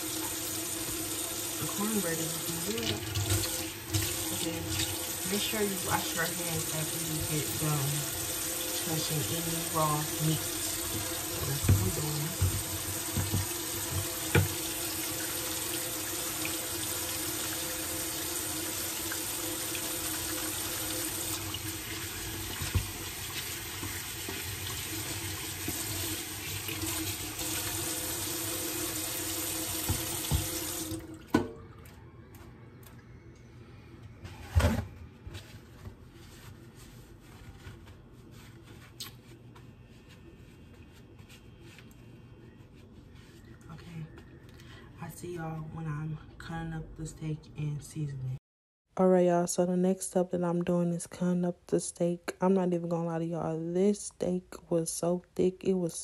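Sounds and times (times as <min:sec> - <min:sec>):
hands washing under water: 0:00.0 - 0:31.3
faucet running: 0:00.0 - 0:31.5.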